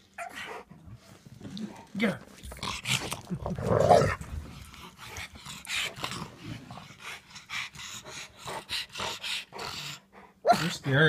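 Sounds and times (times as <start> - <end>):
dogs play-growling: 0.0 - 11.0
dogs breathing noisily: 4.1 - 11.0.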